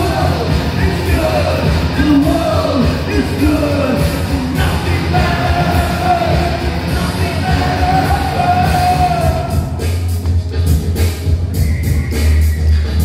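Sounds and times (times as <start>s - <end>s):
person singing: 0.0s - 9.8s
driving bass: 0.0s - 13.0s.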